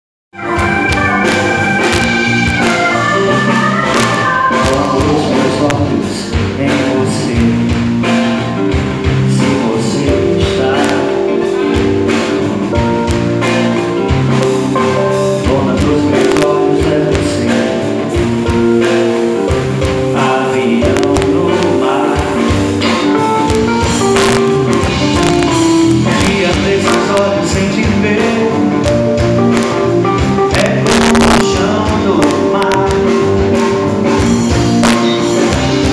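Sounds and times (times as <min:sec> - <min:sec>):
live band playing: 0:00.3 - 0:35.9
keyboard notes stepping downward: 0:00.4 - 0:35.9
man singing: 0:01.2 - 0:12.3, 0:13.0 - 0:29.5, 0:30.3 - 0:35.9.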